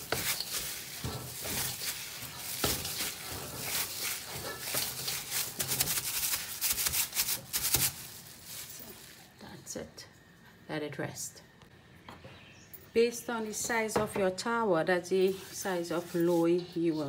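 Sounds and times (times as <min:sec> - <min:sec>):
dough slapping in a metal bowl: 0:00.0 - 0:08.0.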